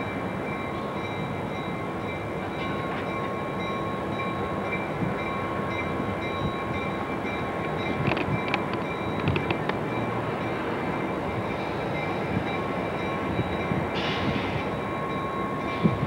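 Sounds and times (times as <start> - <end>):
diesel locomotive engine rumbling: 0.0 - 16.0.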